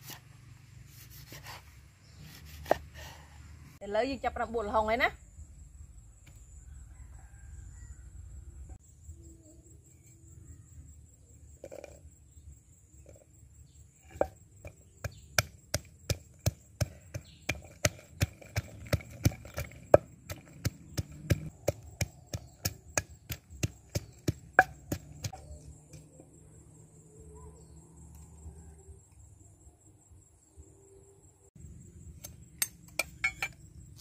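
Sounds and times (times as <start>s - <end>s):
pestle pounding in wooden mortar: 14.1s - 25.4s.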